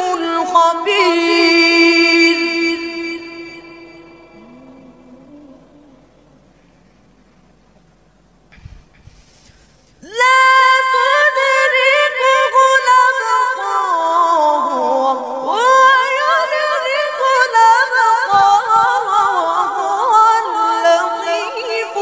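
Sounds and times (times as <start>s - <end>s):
boy reciting melodically: 0.0s - 6.4s, 10.0s - 22.0s.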